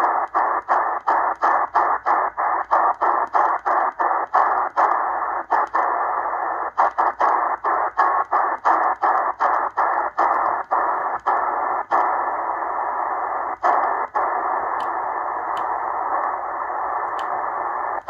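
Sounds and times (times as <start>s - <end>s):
radio static hiss: 0.0s - 18.0s
radio tuning clicks: 0.0s - 18.0s.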